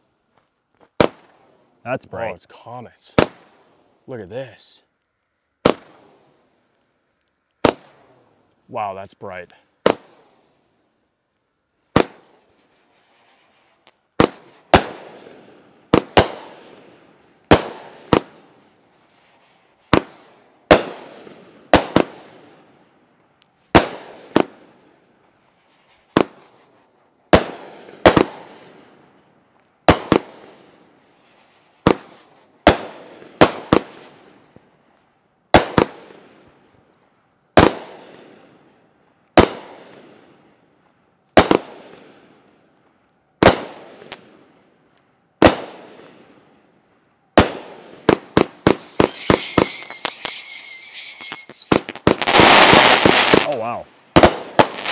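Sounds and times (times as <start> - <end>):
firework shells bursting: 5.6 - 6.4, 7.1 - 10.4, 11.9 - 22.4, 47.3 - 54.9.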